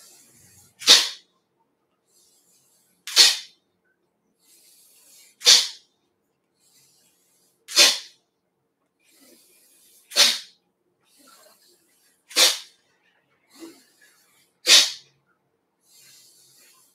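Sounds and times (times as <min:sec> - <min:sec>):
faint breaths drawn in: 0:00.0 - 0:00.8, 0:01.9 - 0:03.1, 0:04.2 - 0:16.9
sharp nasal exhalations: 0:00.0 - 0:01.3, 0:02.2 - 0:03.5, 0:04.4 - 0:05.8, 0:06.6 - 0:08.2, 0:09.0 - 0:12.8, 0:13.5 - 0:15.1, 0:15.8 - 0:16.9.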